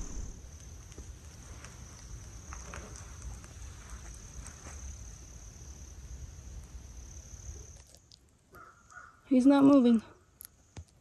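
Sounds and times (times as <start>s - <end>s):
low rumble: 0.0s - 0.5s
crickets trilling: 0.0s - 11.0s.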